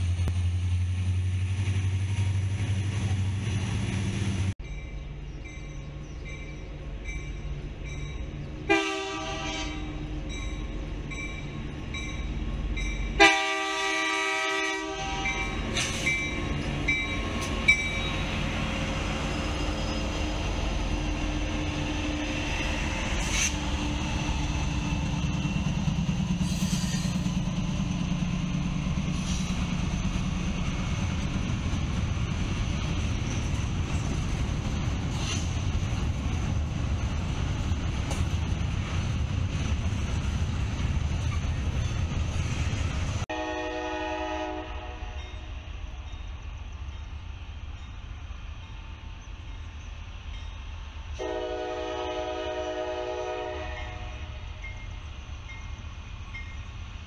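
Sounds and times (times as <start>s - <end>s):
train rumbling: 0.0s - 57.0s
locomotive air horn blasts: 8.7s - 10.1s, 13.2s - 15.6s, 43.3s - 45.3s, 51.2s - 54.4s.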